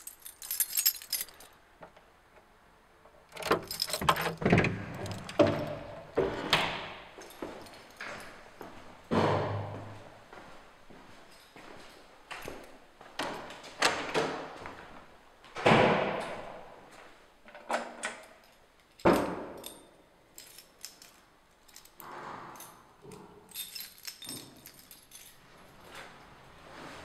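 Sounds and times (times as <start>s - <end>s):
light metallic jingling: 0.0s - 1.6s, 3.4s - 6.2s, 7.2s - 8.5s, 11.2s - 12.6s, 18.2s - 22.0s, 22.6s - 26.3s.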